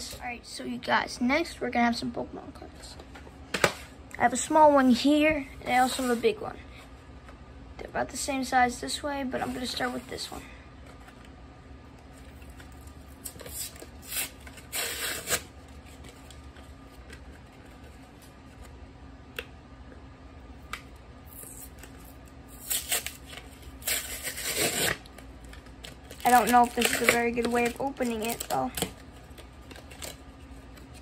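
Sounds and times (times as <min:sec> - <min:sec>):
blister pack crinkling and tearing: 0:21.3 - 0:31.0.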